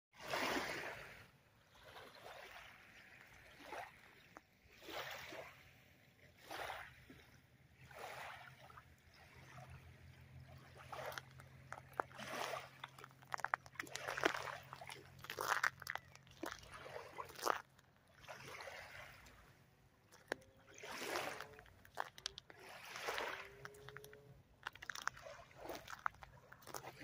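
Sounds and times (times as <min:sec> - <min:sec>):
waves lapping on sand: 0:00.2 - 0:27.0
footsteps crunching on sand: 0:11.1 - 0:17.8, 0:20.1 - 0:27.0.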